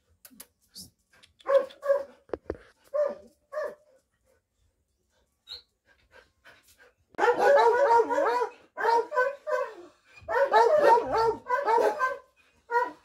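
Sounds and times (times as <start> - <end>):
dog barking: 1.4 - 2.2, 2.9 - 3.8, 7.2 - 13.0.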